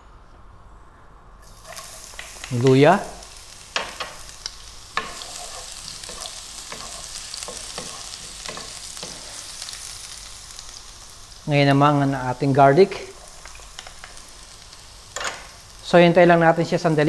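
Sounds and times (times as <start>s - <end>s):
ginger sizzling in hot oil: 1.4s - 17.0s
spatula tapping and scraping: 3.8s - 9.5s.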